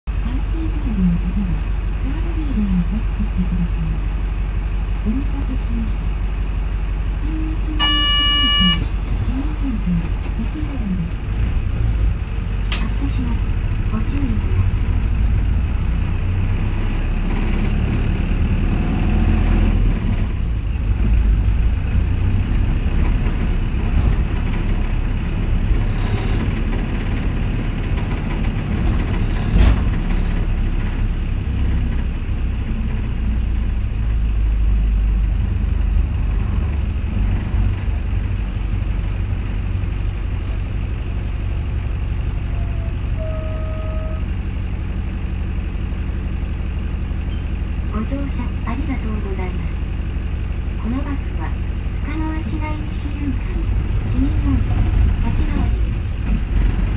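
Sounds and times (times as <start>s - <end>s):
bus diesel engine rumbling: 0.0s - 56.9s
short steady beep: 7.8s - 8.9s.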